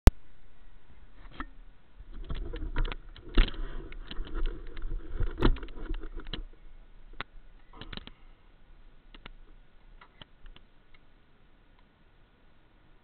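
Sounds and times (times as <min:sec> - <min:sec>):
rustling: 0:00.9 - 0:11.2.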